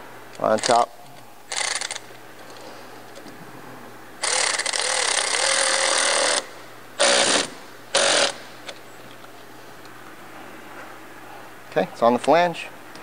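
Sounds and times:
electric ratchet running: 1.5 - 2.1, 4.2 - 8.4.

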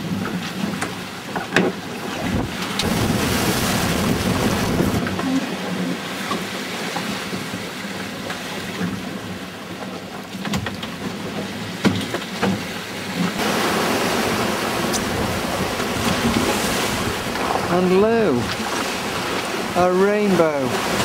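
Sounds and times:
water rushing around hulls: 0.0 - 21.0
wind on microphone: 2.2 - 6.2, 13.3 - 19.8.

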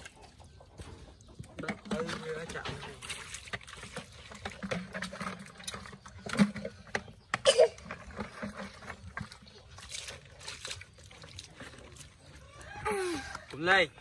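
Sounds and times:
water splashing and sloshing: 0.0 - 14.0.

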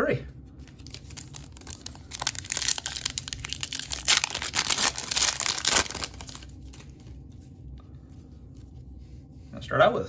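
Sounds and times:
foil wrapper crinkling and tearing: 0.7 - 7.1.

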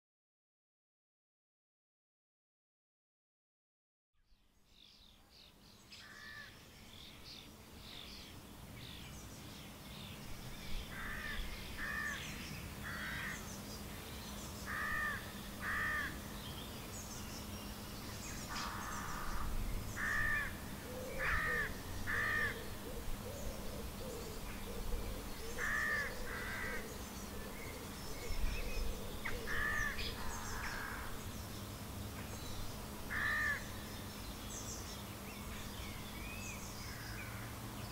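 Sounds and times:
faint birdsong: 4.2 - 37.9
bird calling: 10.2 - 13.6, 14.5 - 31.3, 32.2 - 37.9.

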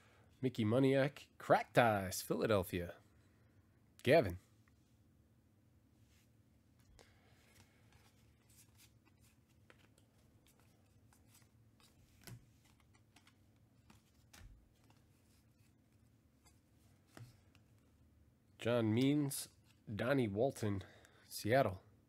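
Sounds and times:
trading cards sliding and clicking: 6.9 - 15.8.

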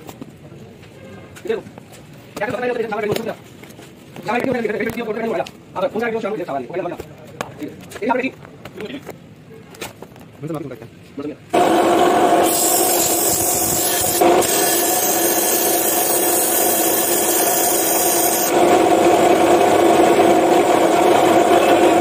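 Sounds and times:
cut-off wheel grinding metal: 11.6 - 22.0
saw motor humming: 11.6 - 22.0.

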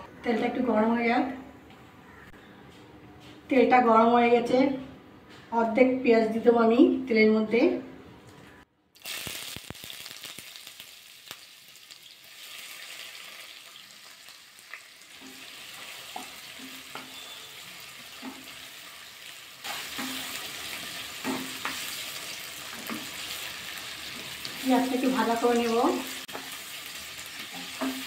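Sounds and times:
onions sizzling in oil: 9.0 - 28.0.

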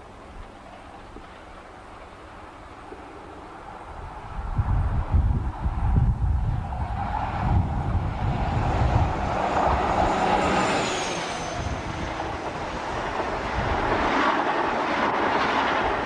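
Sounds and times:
diesel train engine: 6.2 - 16.0.

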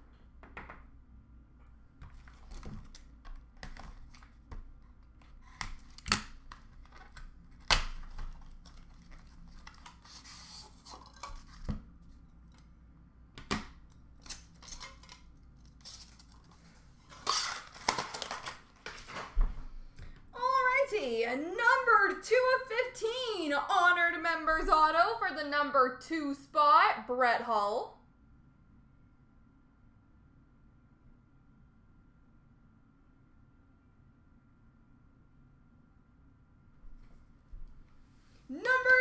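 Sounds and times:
wrapper rustling and tearing: 5.4 - 11.6, 14.2 - 19.3.

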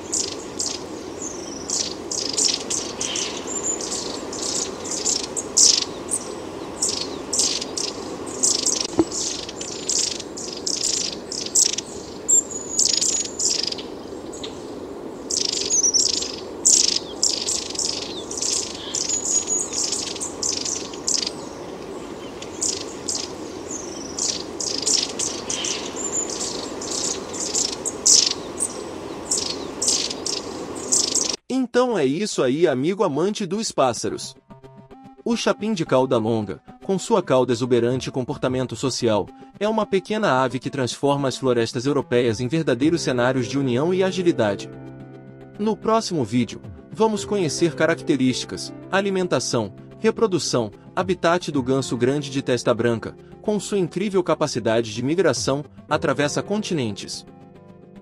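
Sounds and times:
low background hiss: 0.0 - 31.4
small birds calling: 0.0 - 31.4.

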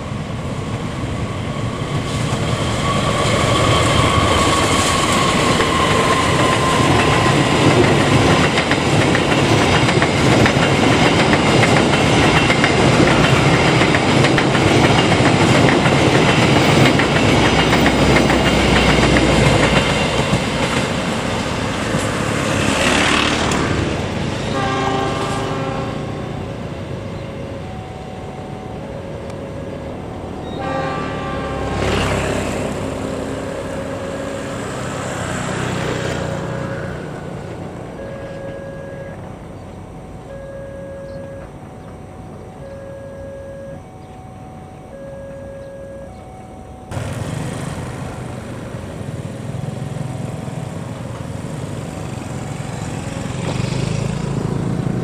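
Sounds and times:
train rumble and wheel clatter: 0.0 - 55.0
locomotive horn: 24.4 - 26.6, 28.4 - 33.0, 37.8 - 39.5, 40.1 - 46.8
short tones: 37.9 - 47.0.

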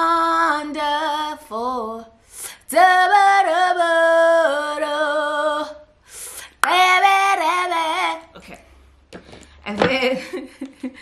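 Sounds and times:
woman singing unaccompanied: 0.0 - 5.8, 6.6 - 8.3.

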